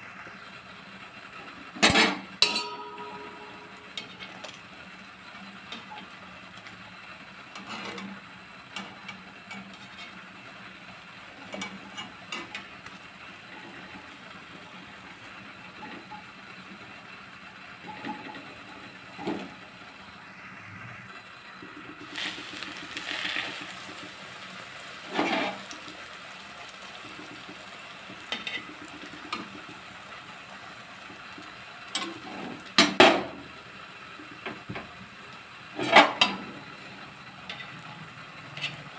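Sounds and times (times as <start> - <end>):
bread sizzling in hot oil: 0.0 - 38.9
metal clatter: 1.8 - 4.6
metal tongs clinking on pan: 1.9 - 4.6.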